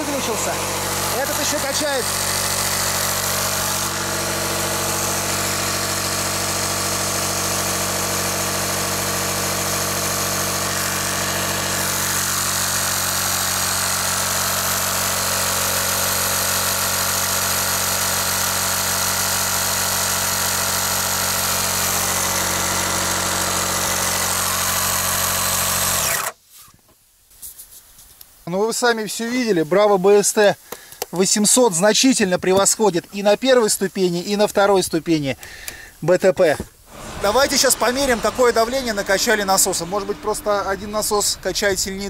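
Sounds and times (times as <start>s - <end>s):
electric boat pump running: 0.0s - 26.4s, 36.8s - 42.0s.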